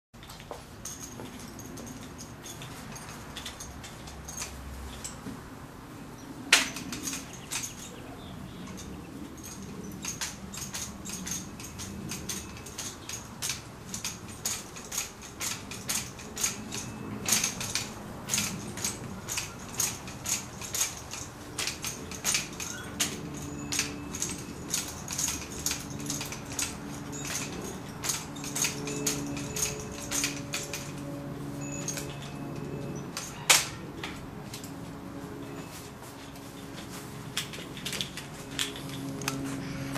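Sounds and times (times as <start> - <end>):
rifle fittings clicking and rattling: 8.7 - 31.0, 37.4 - 39.4.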